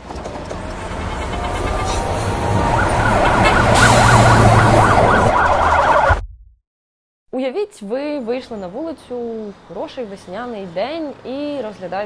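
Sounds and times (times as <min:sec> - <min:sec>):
street traffic rumble: 0:00.0 - 0:06.1, 0:07.9 - 0:12.0
siren yelping: 0:01.1 - 0:06.2.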